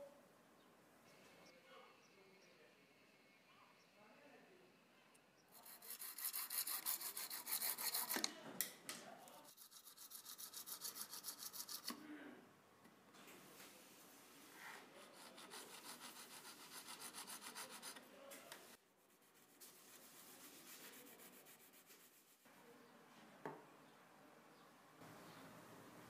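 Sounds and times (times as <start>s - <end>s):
small saw rasping: 5.5s - 8.3s, 9.3s - 12.0s, 14.9s - 18.0s
hand-sanding on abrasive paper: 5.6s - 8.2s, 9.5s - 11.9s, 15.0s - 18.0s, 19.1s - 22.5s.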